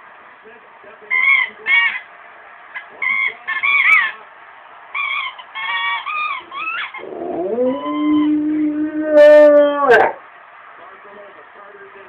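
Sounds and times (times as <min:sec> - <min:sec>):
dog howling: 0:05.6 - 0:10.2.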